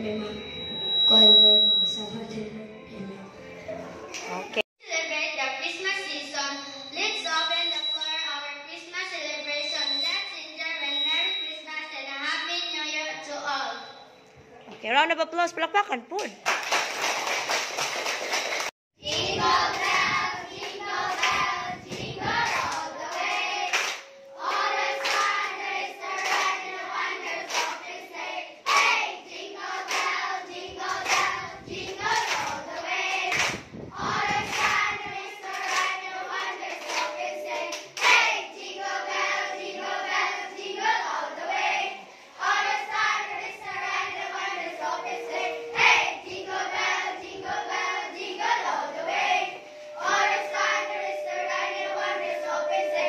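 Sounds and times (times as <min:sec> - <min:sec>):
hand claps: 0:16.2 - 0:20.0, 0:22.4 - 0:25.6, 0:26.2 - 0:26.6, 0:27.5 - 0:27.8, 0:28.7 - 0:28.9, 0:29.8 - 0:30.2, 0:30.9 - 0:31.3, 0:32.0 - 0:32.6, 0:33.2 - 0:33.6, 0:34.2 - 0:34.9, 0:35.5 - 0:38.3
children singing: 0:19.0 - 0:53.0.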